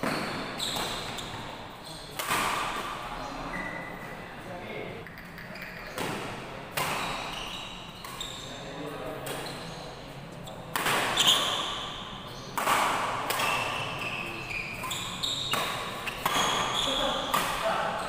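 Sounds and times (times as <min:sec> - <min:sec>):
racket hitting shuttlecock: 0:00.0 - 0:01.4, 0:02.2 - 0:03.0, 0:06.0 - 0:07.3, 0:10.7 - 0:11.9, 0:12.6 - 0:14.0, 0:14.8 - 0:17.8.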